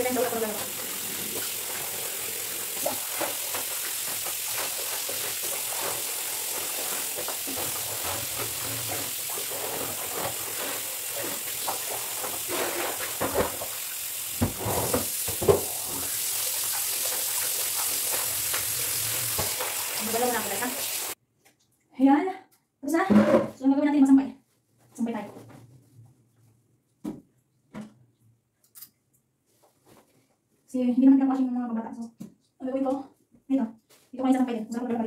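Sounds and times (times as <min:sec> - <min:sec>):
clothes scrubbed in soapy water: 0:00.0 - 0:21.2
water splashes: 0:00.0 - 0:21.2.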